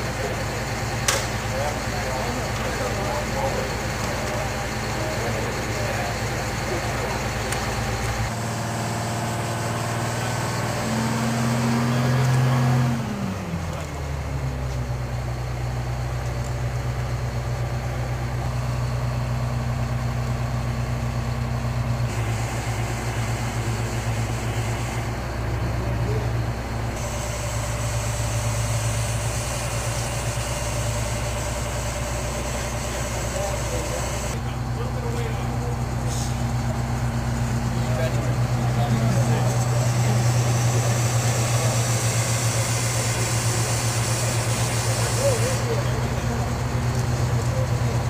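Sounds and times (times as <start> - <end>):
crane diesel engine running: 0.0 - 48.0.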